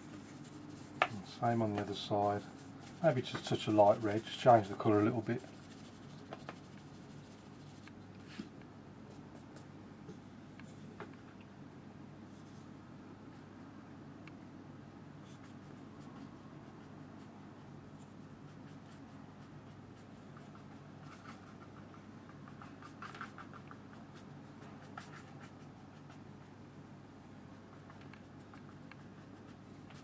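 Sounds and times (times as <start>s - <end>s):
brush scraping on paper: 0.0s - 8.5s, 18.0s - 26.3s
low room hum: 0.0s - 30.0s.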